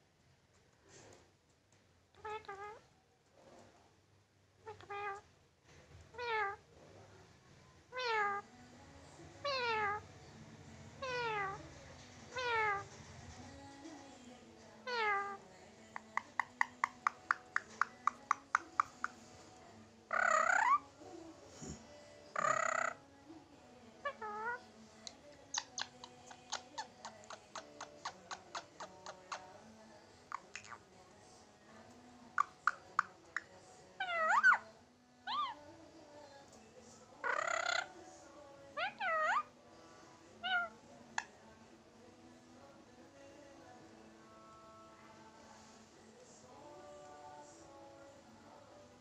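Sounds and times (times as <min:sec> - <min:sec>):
parakeet mimicking cat meows: 0:02.2 - 0:02.8, 0:04.6 - 0:05.2, 0:06.1 - 0:06.6, 0:07.9 - 0:08.4, 0:09.4 - 0:10.0, 0:11.0 - 0:11.6, 0:12.3 - 0:12.9, 0:14.8 - 0:15.4, 0:20.1 - 0:20.8, 0:22.4 - 0:23.0, 0:34.0 - 0:34.6, 0:35.3 - 0:35.6, 0:37.2 - 0:37.9, 0:38.8 - 0:39.5, 0:40.4 - 0:41.3
parakeet clicking: 0:16.0 - 0:19.2
loud parakeet calls: 0:20.1 - 0:20.8, 0:22.4 - 0:23.0, 0:35.3 - 0:35.6, 0:37.2 - 0:37.9.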